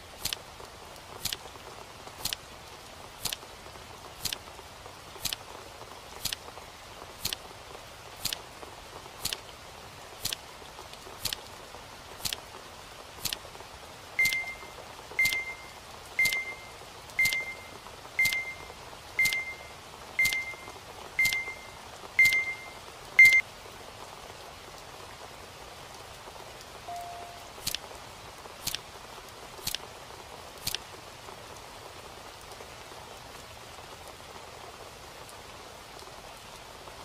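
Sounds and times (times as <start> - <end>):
short high beeps: 14.2 - 23.4, 26.9 - 27.5
timer ticking: 14.2 - 23.4, 26.9 - 27.8.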